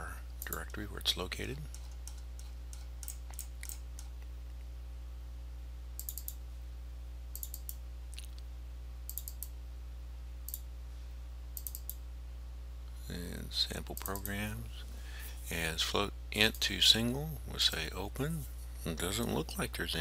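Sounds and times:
steady low hum: 0.0 - 20.0
computer mouse clicking: 1.7 - 4.3, 6.0 - 6.4, 7.3 - 8.3, 9.1 - 9.5, 11.6 - 12.0.

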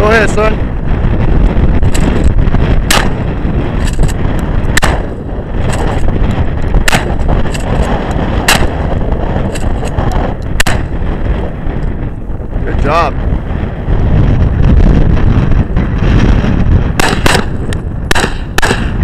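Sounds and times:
wind buffeting microphone: 0.0 - 19.0
shotgun shots: 1.8 - 6.0, 6.8 - 10.0, 10.6 - 11.0, 17.0 - 19.0.

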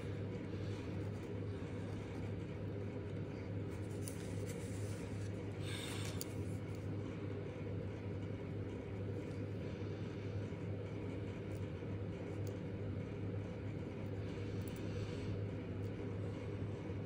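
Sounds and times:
steady low hum: 0.0 - 17.0
card rustling: 3.7 - 6.6.

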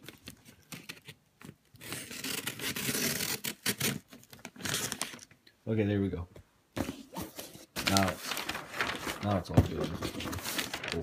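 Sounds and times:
tape and cardboard tearing: 0.7 - 5.3
cardboard crinkling and tapping: 6.8 - 11.0.

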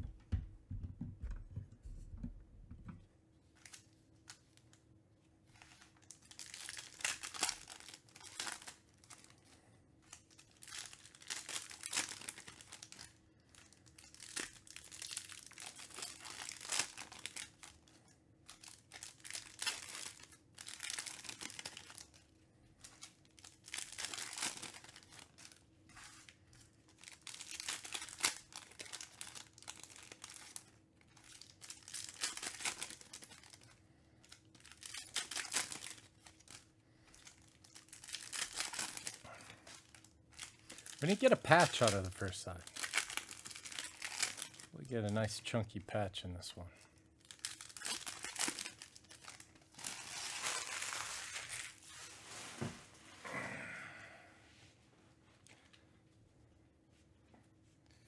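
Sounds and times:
foil wrappers crinkling and tearing: 5.5 - 45.5, 46.8 - 53.0.

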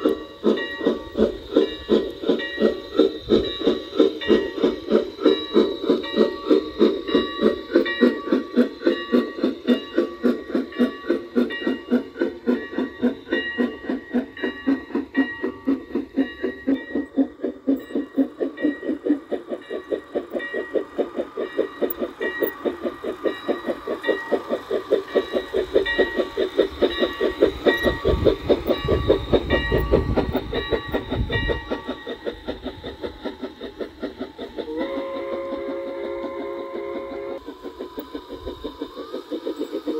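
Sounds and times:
model steam train chuffing: 0.0 - 39.9.

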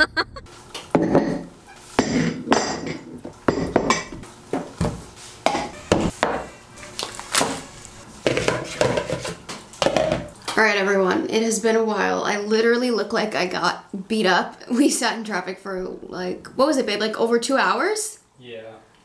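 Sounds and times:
kitchen items knocking on countertop: 0.9 - 6.5, 8.2 - 10.3.

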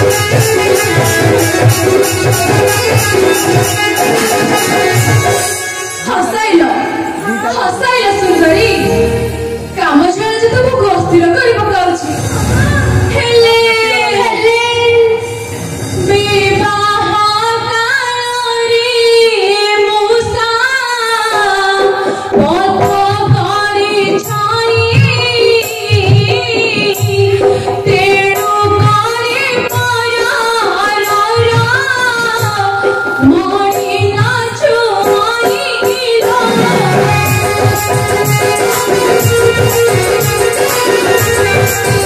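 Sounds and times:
drum strokes: 30.9 - 42.0.

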